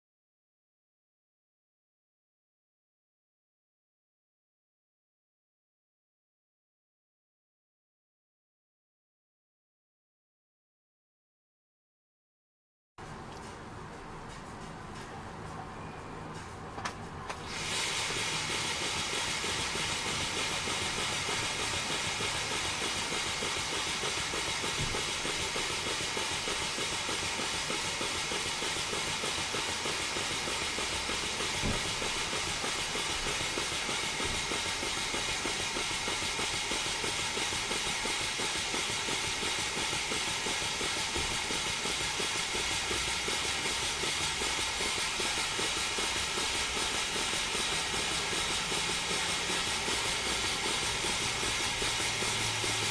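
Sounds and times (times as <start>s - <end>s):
model steam engine exhaust beats: 17.3s - 52.9s
hiss of escaping air: 17.4s - 52.9s.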